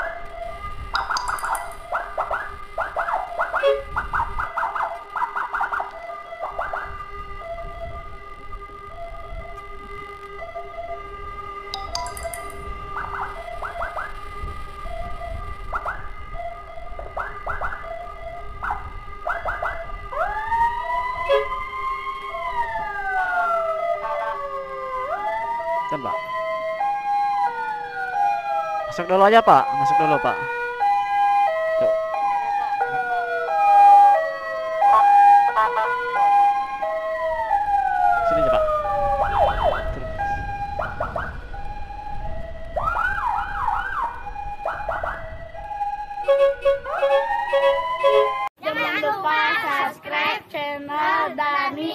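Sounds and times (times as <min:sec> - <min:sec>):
electronic siren chirping and wailing: 0:00.0 - 0:48.5
motorcycle road rumble: 0:36.2 - 0:48.5.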